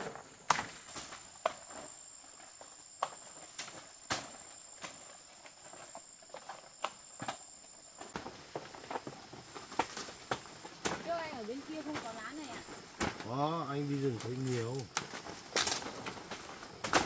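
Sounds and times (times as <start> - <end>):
high-pitched insect trill: 0.0 - 17.0
vegetation snapping and crackling: 14.1 - 17.0.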